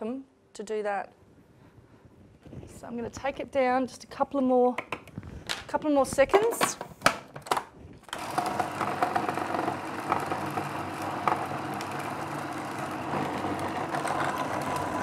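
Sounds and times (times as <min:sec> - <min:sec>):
food processor grinding: 0:08.1 - 0:15.0.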